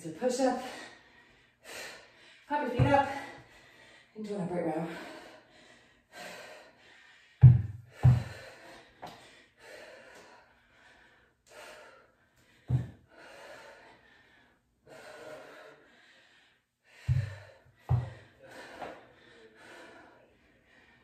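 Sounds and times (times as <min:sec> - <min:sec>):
woman breathing hard: 0:00.5 - 0:04.2, 0:04.8 - 0:21.0
dull thumps: 0:02.7 - 0:03.2, 0:07.4 - 0:08.5, 0:17.1 - 0:18.2.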